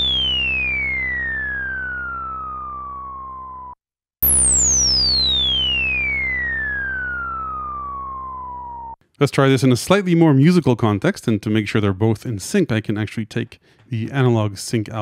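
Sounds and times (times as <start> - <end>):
steady low synth note: 0.0 - 9.0
synth laser tone falling: 0.0 - 9.0.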